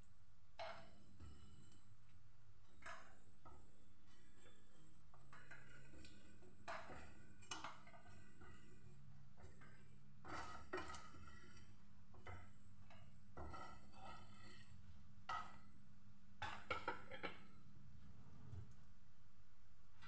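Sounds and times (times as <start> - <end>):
spatula scraping frying pan: 4.1 - 15.6.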